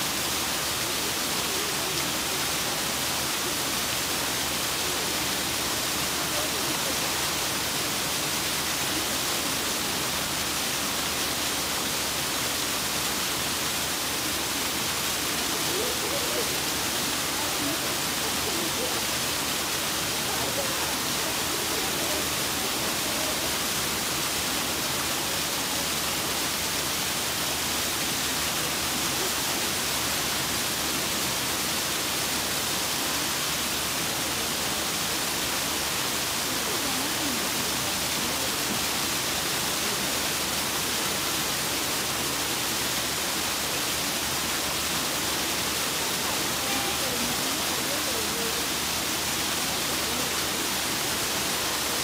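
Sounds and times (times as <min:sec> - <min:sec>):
running water rushing: 0:00.0 - 0:52.0
faint voices murmuring: 0:14.1 - 0:26.2, 0:46.0 - 0:48.7.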